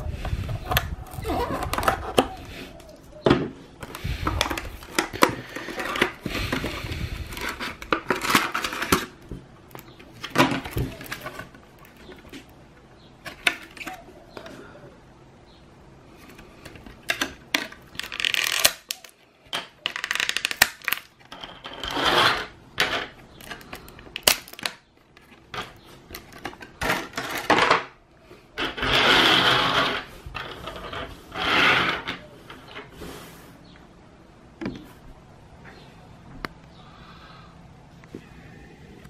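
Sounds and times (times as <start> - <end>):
plastic blister tray crinkling: 3.8 - 12.6, 16.2 - 21.9
small plastic pieces clicking: 16.3 - 27.9.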